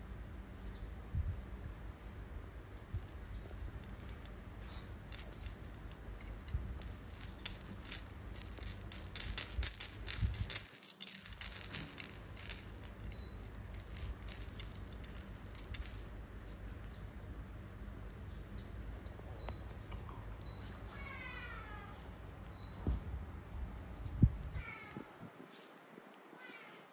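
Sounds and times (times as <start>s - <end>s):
baby rattle beads clattering: 2.9s - 3.6s, 5.1s - 16.1s.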